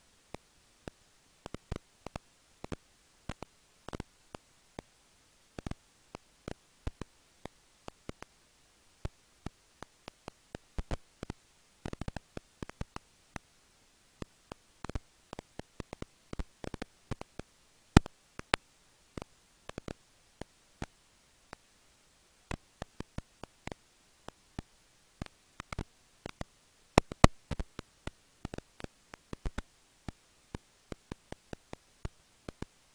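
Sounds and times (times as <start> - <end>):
bats clicking: 0.3 - 4.9, 5.5 - 8.4, 9.0 - 13.5, 14.2 - 21.7, 22.4 - 32.9.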